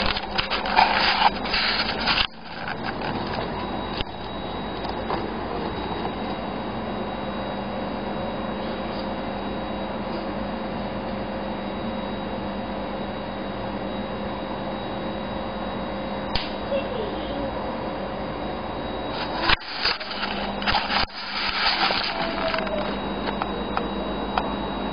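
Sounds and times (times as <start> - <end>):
background hiss and hum: 0.0 - 24.9
single click: 16.3 - 16.6.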